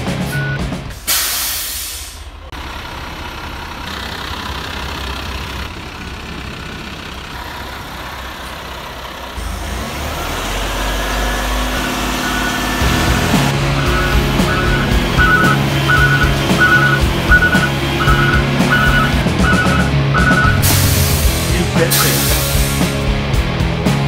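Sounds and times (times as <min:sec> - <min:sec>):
diesel engine running: 0:00.0 - 0:24.0
air hiss blast: 0:01.0 - 0:02.2, 0:20.6 - 0:22.9.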